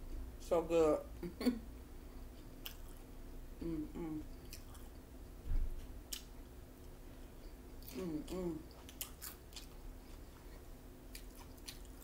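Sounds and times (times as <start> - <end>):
chewing crunchy food: 2.3 - 3.1, 4.3 - 12.0
person humming: 3.6 - 4.3, 7.9 - 8.7.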